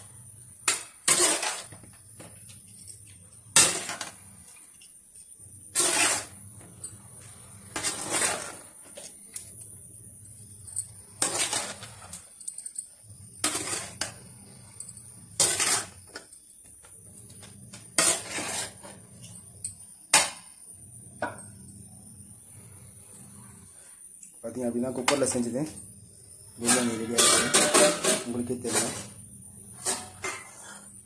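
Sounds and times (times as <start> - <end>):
spoon scraping metal pot: 5.7 - 9.6, 11.2 - 12.3, 13.4 - 16.3, 17.3 - 19.4, 26.6 - 31.0.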